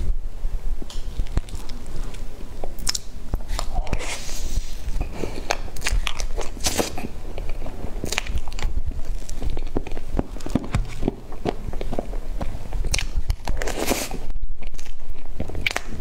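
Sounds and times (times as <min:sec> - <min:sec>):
chewing with sticky clicks: 0:05.4 - 0:13.8.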